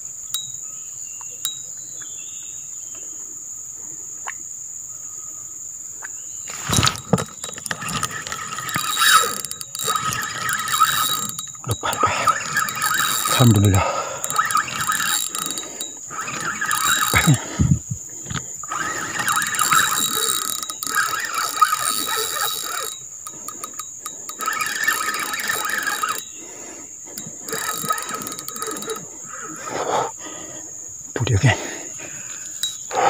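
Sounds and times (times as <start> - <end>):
fishing reel ratcheting clicks: 6.5 - 29.9, 32.3 - 33.0.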